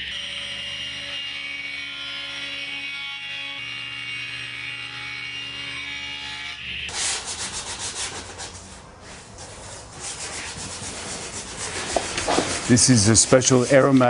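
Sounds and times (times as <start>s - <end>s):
table saw motor humming: 0.0s - 6.9s
coarse rubbing on wood: 6.9s - 14.0s.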